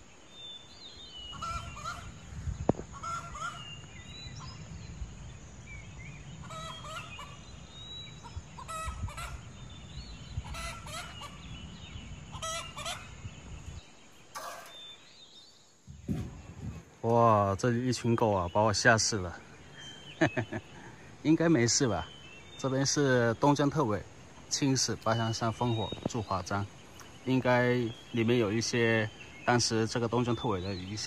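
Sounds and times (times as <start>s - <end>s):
fowl calling: 1.2s - 2.2s, 2.8s - 4.6s, 6.4s - 7.5s, 8.2s - 9.6s, 10.3s - 11.6s, 12.3s - 13.2s, 14.3s - 14.9s.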